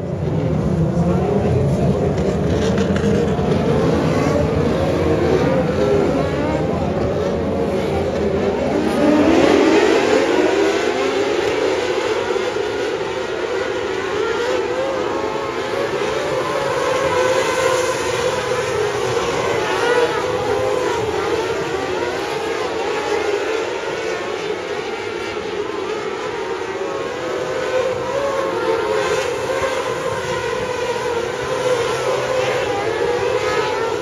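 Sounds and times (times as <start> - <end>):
racing car engines revving: 0.0 - 34.0.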